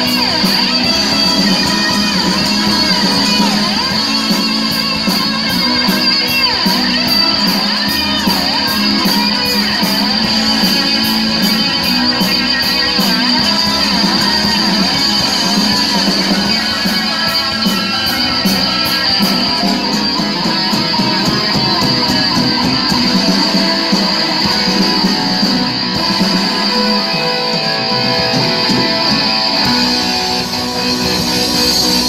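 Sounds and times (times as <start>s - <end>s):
rock band playing: 0.0s - 32.0s.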